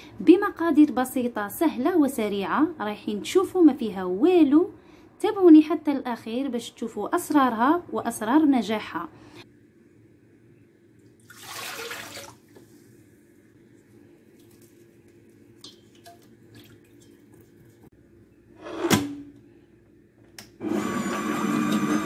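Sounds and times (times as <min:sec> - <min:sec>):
water pouring into metal bowl: 0:11.2 - 0:12.4
rustling pour: 0:11.2 - 0:13.0, 0:13.8 - 0:17.9.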